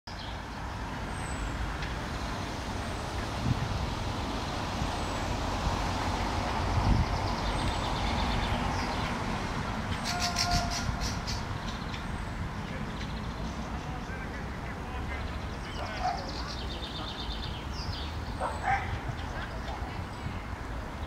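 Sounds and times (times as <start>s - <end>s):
city traffic rumble: 0.1s - 21.0s
high bird calls: 9.9s - 20.4s.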